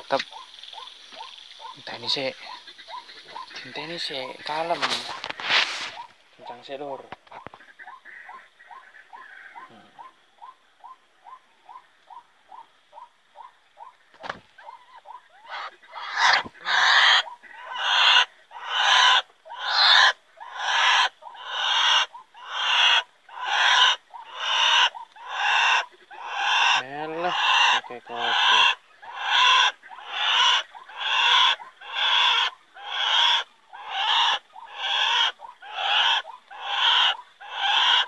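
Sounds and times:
loud harsh bird calls: 0.0 - 38.0.

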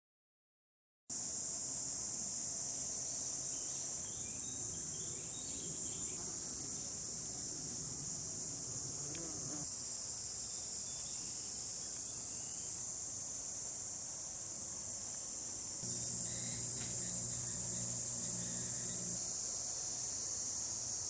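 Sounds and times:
cicadas singing: 1.1 - 21.0
low hum: 15.8 - 19.2.

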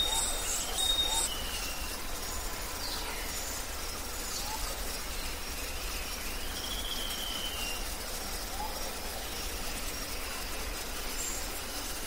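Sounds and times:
faint bird whistles: 0.0 - 1.8, 6.4 - 7.8
low rumble and hiss: 0.0 - 12.0.

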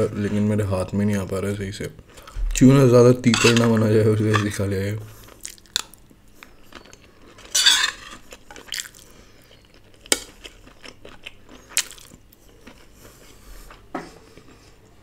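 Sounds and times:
chewing food: 5.1 - 15.0.

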